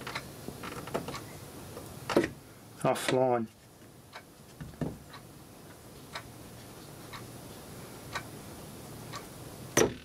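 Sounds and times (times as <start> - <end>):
clock ticking: 8.1 - 8.3.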